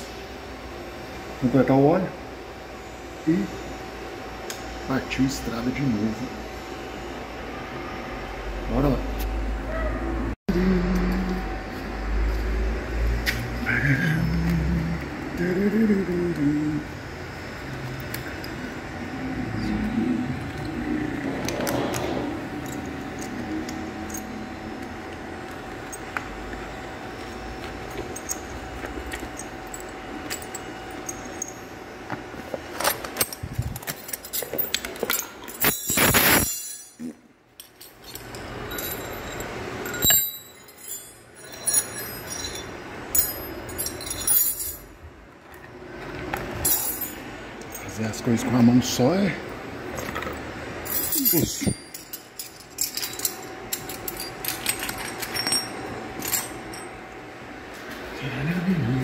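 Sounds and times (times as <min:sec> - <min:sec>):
low rumbling handling noise: 0:18.0 - 0:31.3
metal buckle clinks: 0:32.8 - 0:44.9, 0:50.8 - 0:57.0.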